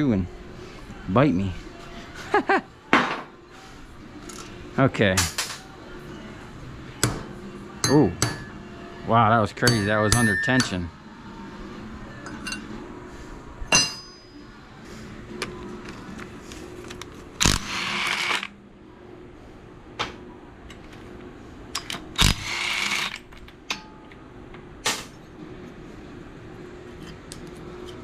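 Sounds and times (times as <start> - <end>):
metal tools clinking and knocking: 9.6 - 10.8, 12.2 - 12.7
ringing metal clink: 9.7 - 10.8, 13.7 - 14.4
power tool bursts: 17.4 - 18.5, 22.2 - 23.2.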